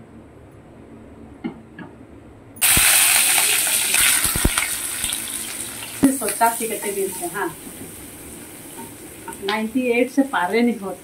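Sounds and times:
onions sizzling in hot oil: 2.6s - 11.0s.

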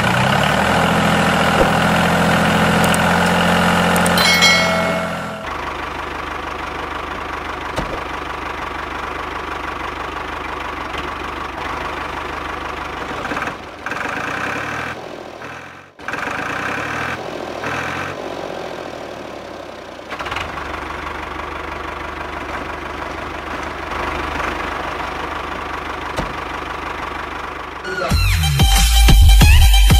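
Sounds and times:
tractor engine idling: 0.0s - 14.2s, 18.9s - 28.0s.

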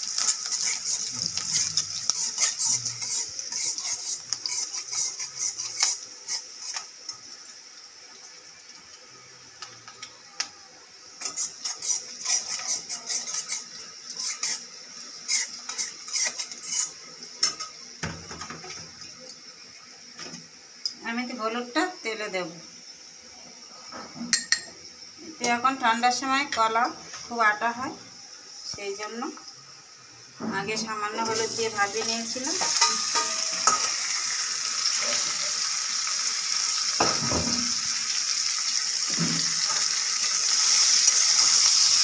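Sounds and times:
frying sizzle: 0.0s - 42.0s
metal spatula clinking on a pan: 32.6s - 33.9s.

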